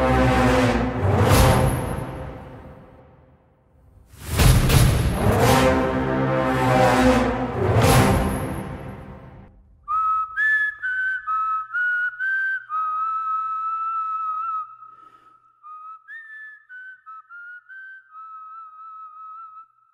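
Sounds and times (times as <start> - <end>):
loud musical hit: 0.0 - 3.2, 4.1 - 9.6
whistled tune: 9.8 - 19.9.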